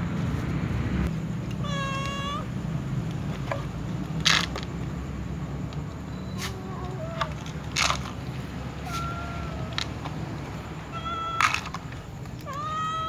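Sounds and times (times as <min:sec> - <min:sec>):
cat meowing: 0:01.6 - 0:02.5, 0:06.3 - 0:07.6, 0:08.7 - 0:13.0.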